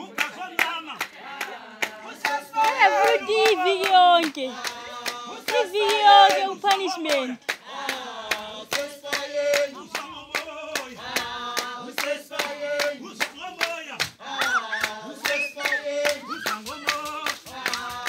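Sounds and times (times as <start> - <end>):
voices singing together: 0.0 - 18.0
fast hand clapping: 0.2 - 18.0.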